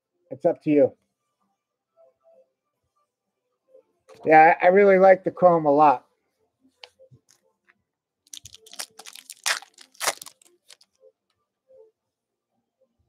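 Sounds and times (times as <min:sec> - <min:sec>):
foil wrapper crinkling and tearing: 0:08.3 - 0:10.8.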